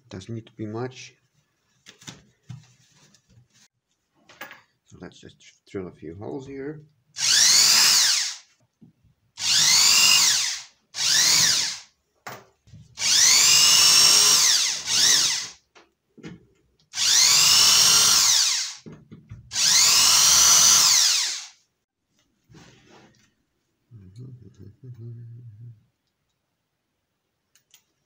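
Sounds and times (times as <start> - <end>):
cordless drill whining: 7.2 - 8.5, 9.4 - 11.9, 13.0 - 15.6, 16.9 - 18.8, 19.5 - 21.6.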